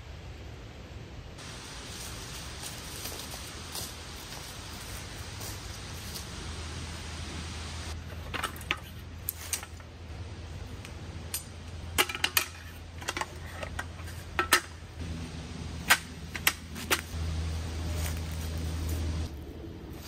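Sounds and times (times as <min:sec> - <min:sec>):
handling rustle: 0:16.3 - 0:20.0.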